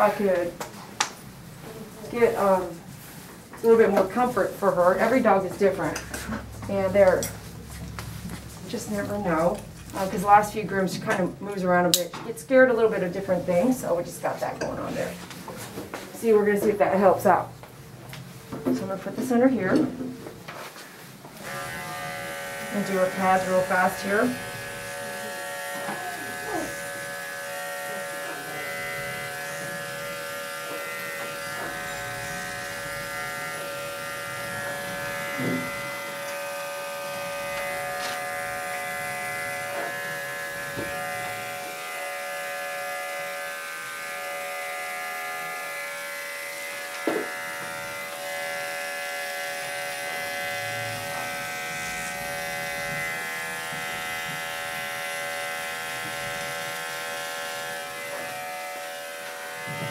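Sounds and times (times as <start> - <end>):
electric clippers buzzing: 21.4 - 59.9.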